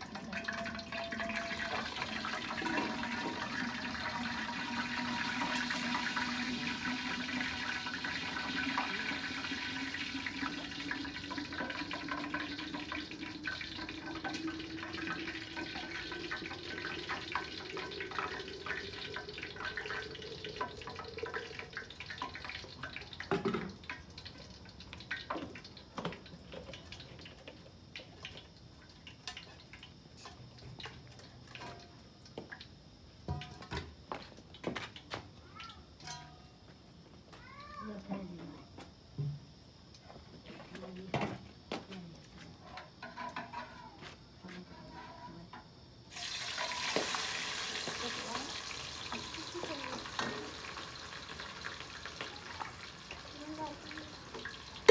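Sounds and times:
water pouring into flask: 0.0s - 23.0s
clinks and knocks of vessels: 0.1s - 3.4s, 22.2s - 23.8s, 36.0s - 36.6s.

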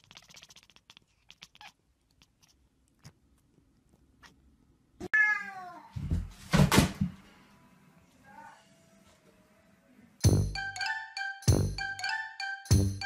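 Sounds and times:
cat meowing: 5.1s - 5.9s.

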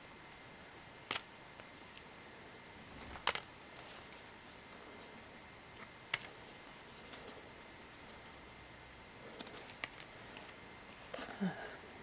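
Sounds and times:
faint steady hum: 0.0s - 12.0s
cardboard discs clicking together: 1.0s - 2.0s, 3.0s - 4.2s, 5.8s - 6.4s, 9.4s - 11.2s.

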